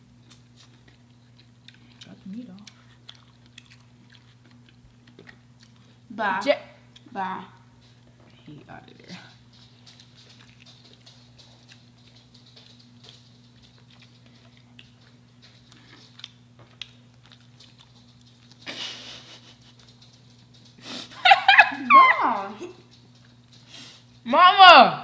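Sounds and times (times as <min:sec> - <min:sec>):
steady low hum: 0:00.0 - 0:25.0
chewing clicks: 0:00.2 - 0:06.0, 0:09.3 - 0:20.8
food rustling: 0:00.2 - 0:06.1, 0:07.6 - 0:24.2
high wavering cry: 0:21.2 - 0:22.7.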